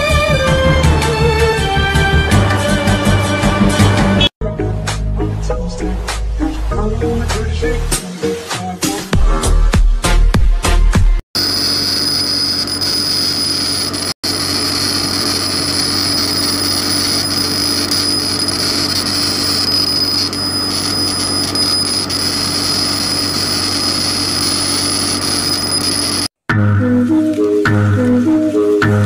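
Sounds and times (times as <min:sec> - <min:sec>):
mechanical whirring with high whine: 0:11.4 - 0:26.3.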